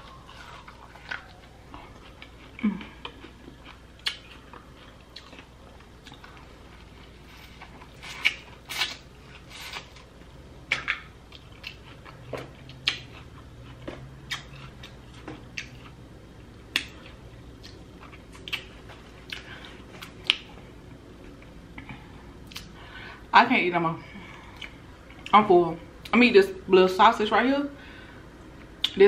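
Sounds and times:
chewing and lip smacks: 0.1s - 10.0s, 10.6s - 20.6s, 21.2s - 22.8s, 24.5s - 25.4s.

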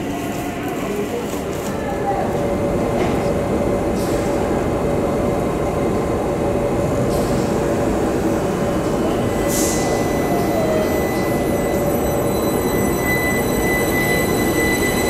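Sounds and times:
electric train rumbling: 0.0s - 15.0s.

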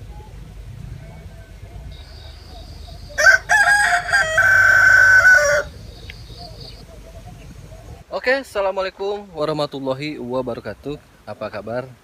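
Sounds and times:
rooster crowing: 2.0s - 5.8s.

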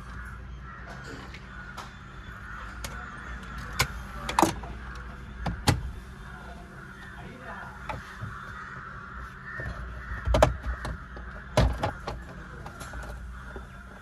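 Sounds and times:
birds cawing: 0.0s - 14.0s
knocks and clicks on plastic: 10.2s - 13.2s.

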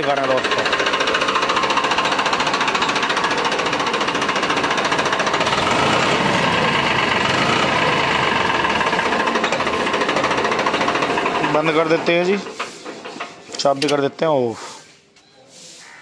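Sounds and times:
tractor diesel engine running: 0.0s - 14.2s.

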